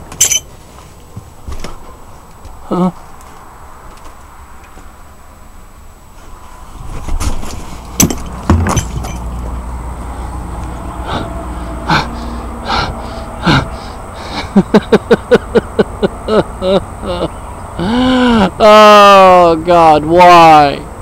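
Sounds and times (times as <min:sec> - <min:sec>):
man panting: 0:01.6 - 0:03.1, 0:10.0 - 0:14.8, 0:17.0 - 0:18.6
sharp knocks: 0:08.0 - 0:09.3.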